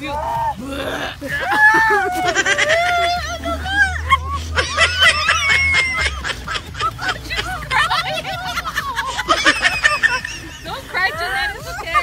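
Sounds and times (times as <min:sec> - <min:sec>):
people laughing and chattering: 0:00.0 - 0:12.0.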